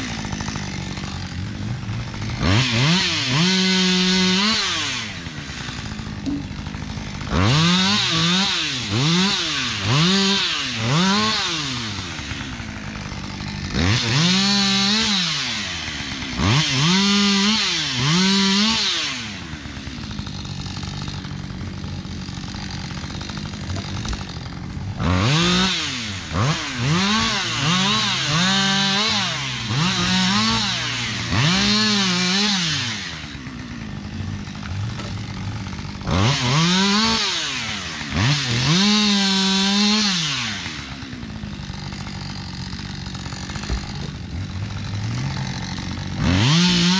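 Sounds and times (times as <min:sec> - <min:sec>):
chainsaw revving and idling: 0:00.0 - 0:46.9.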